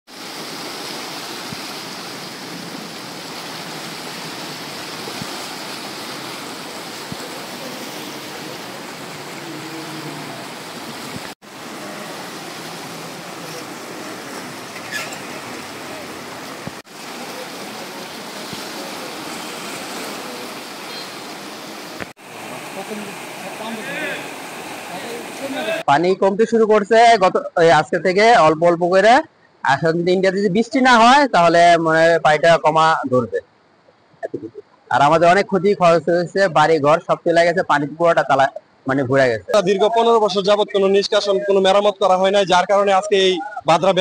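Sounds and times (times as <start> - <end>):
floodwater rushing and churning: 0.1 - 25.9.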